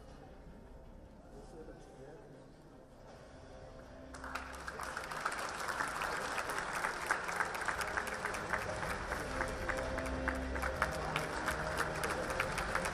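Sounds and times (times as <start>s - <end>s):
audience applauding: 4.1s - 12.9s.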